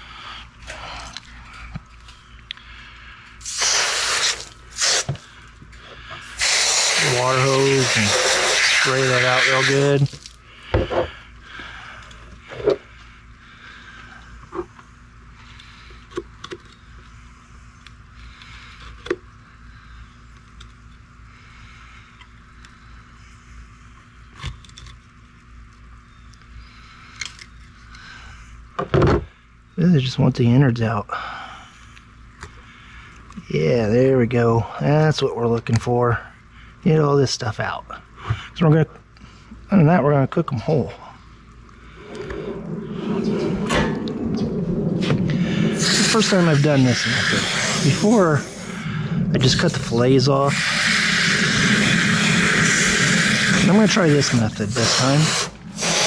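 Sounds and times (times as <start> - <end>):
low rumble and hiss: 0.0 - 56.0
hose nozzle spraying water: 3.4 - 5.3, 6.2 - 10.4, 45.8 - 56.0.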